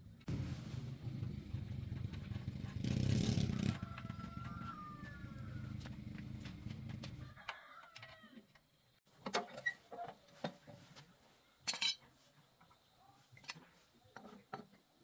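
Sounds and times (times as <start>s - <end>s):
steel parts clinking on concrete: 11.6s - 12.1s.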